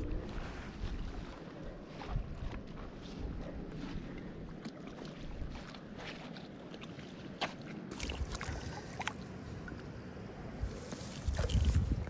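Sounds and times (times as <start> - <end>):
wind buffeting microphone: 0.0 - 4.6, 7.9 - 12.0
water sloshing and splashing: 2.8 - 10.0, 10.6 - 12.0.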